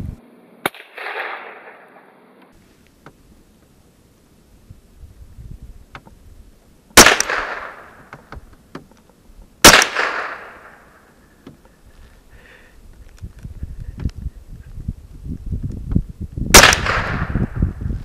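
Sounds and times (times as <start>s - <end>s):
echoing gunshots: 0.6s - 2.2s, 7.0s - 8.1s, 9.6s - 11.1s, 16.5s - 17.6s.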